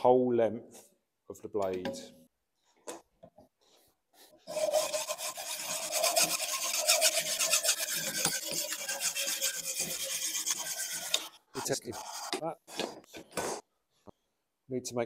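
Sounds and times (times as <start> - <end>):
hacksaw sawing steel pipe: 4.4 - 12.4.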